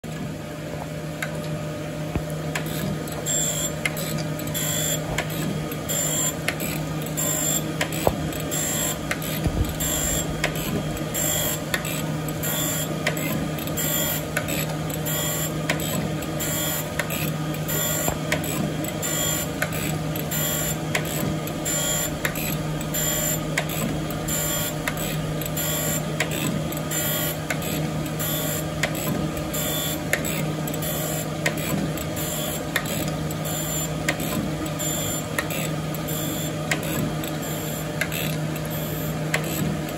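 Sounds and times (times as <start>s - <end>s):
grinder spindle hum: 2.6s - 15.5s, 16.4s - 28.4s.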